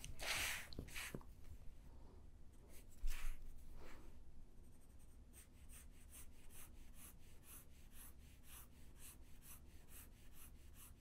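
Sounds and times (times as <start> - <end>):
pencil scratching on paper: 4.6 - 11.0.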